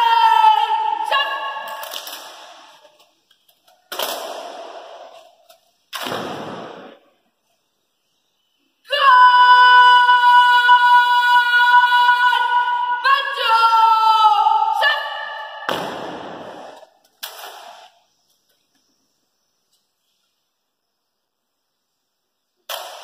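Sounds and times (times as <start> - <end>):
person shouting a command: 0.0 - 1.9, 8.9 - 15.7.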